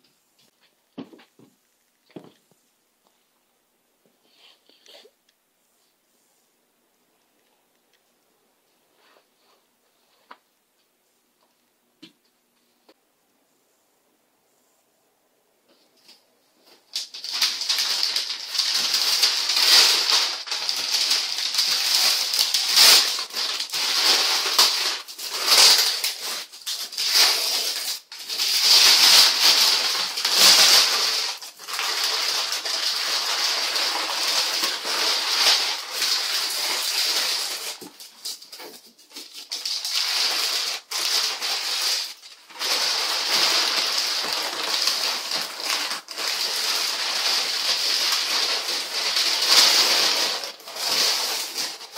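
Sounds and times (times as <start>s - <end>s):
paper tearing and crumpling: 16.8s - 51.9s.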